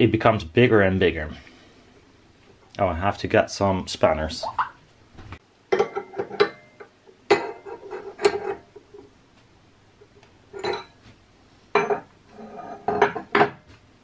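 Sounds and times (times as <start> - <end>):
metal spanners clinking: 10.6 - 11.0.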